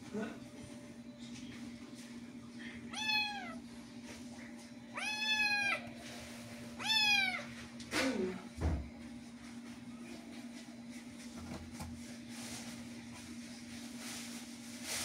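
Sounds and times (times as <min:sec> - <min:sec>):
kitten meowing: 0:02.9 - 0:03.6, 0:04.9 - 0:05.8, 0:06.8 - 0:07.5.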